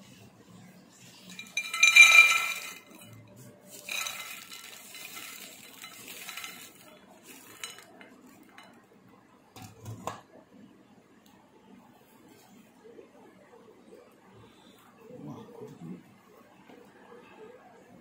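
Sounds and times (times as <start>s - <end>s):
peanuts clattering onto ceramic plate: 1.3s - 8.6s.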